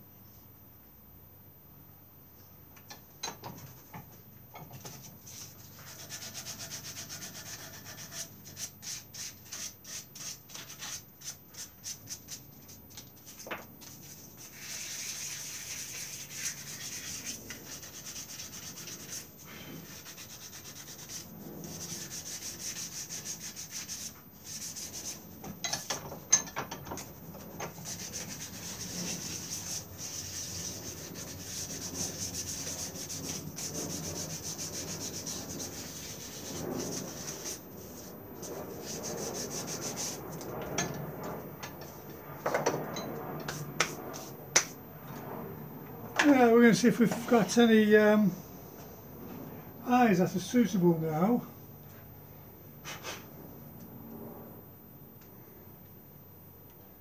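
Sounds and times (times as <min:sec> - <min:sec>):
sandpaper rubbing wood: 0:05.3 - 0:25.3, 0:27.7 - 0:40.3.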